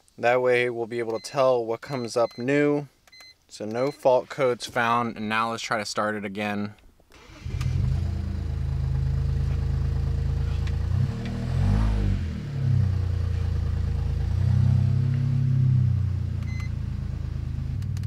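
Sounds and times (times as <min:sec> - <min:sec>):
car engine starting and revving: 0:07.2 - 0:18.0.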